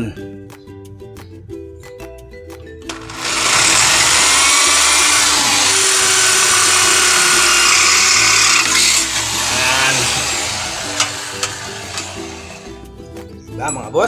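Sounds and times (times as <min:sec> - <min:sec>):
electric drill boring metal: 0:02.9 - 0:12.8.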